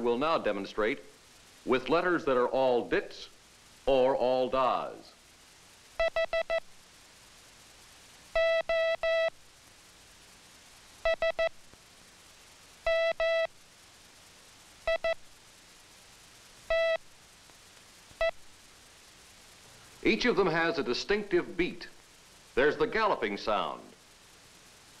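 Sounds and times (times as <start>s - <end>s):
morse code tone: 12.9s - 13.5s.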